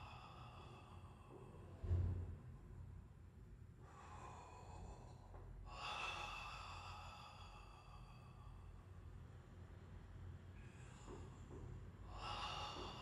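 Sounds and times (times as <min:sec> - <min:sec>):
man breathing deeply: 0:00.0 - 0:01.9, 0:03.8 - 0:09.2, 0:10.6 - 0:13.0.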